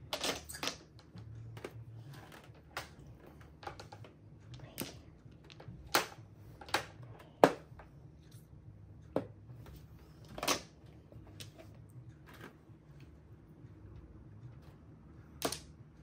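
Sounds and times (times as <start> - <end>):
mahjong tiles clacking on table: 0.0 - 7.7, 15.4 - 15.8.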